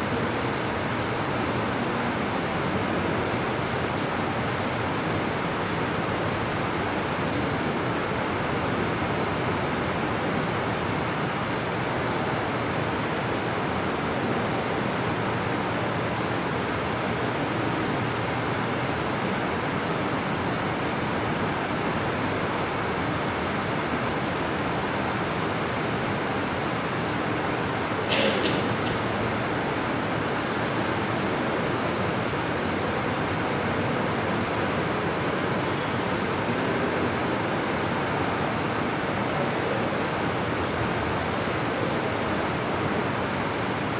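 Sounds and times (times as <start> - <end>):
room tone hiss: 0.0 - 43.9.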